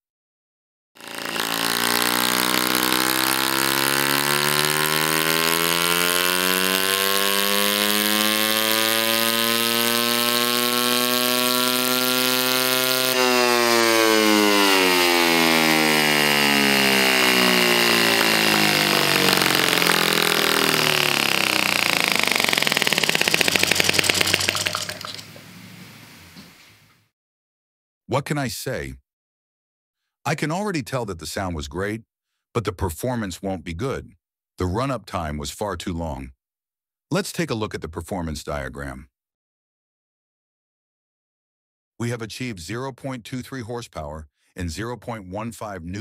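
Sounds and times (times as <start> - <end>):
model engine running: 1.0 - 25.3
high whine: 11.0 - 24.5.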